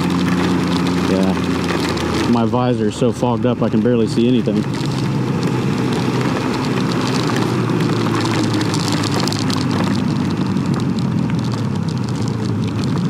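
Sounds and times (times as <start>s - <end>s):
heavy rain: 0.0s - 13.0s
motorcycle engine running: 0.0s - 13.0s.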